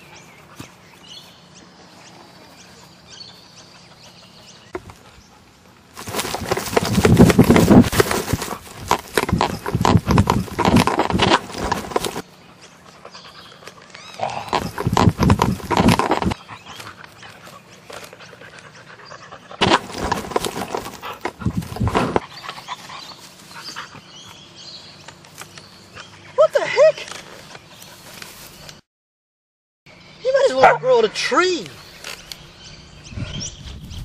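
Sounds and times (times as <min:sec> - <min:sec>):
dog running over grass: 0:05.9 - 0:12.2, 0:14.5 - 0:16.4, 0:19.6 - 0:22.2
dog panting hard: 0:20.2 - 0:24.1.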